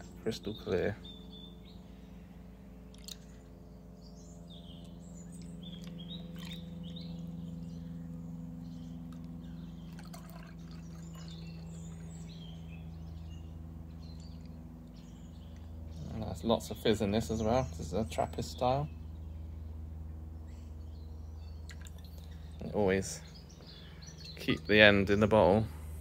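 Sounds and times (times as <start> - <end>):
birds chirping: 0.0 - 26.0
beer pouring into a glass: 9.9 - 11.3
beer fizzing: 9.9 - 11.7.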